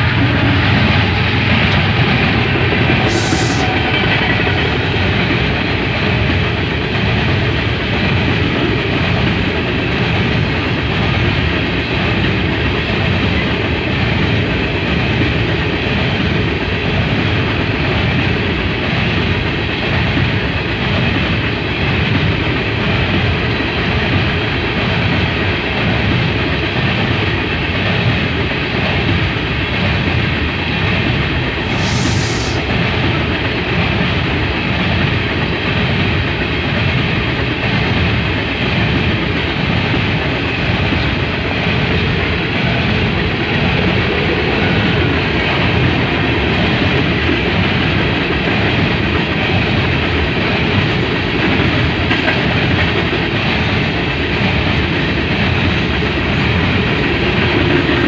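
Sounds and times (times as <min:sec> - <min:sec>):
locomotive passing: 0:00.0 - 0:10.9
train wheels rumbling on rails: 0:00.0 - 0:58.0
short hiss: 0:03.1 - 0:03.8, 0:31.6 - 0:32.7.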